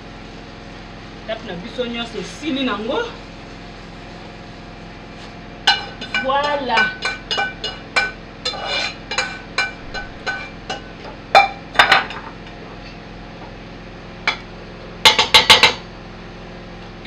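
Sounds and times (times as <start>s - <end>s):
metal spoon scraping a steel pot: 5.7s - 10.8s.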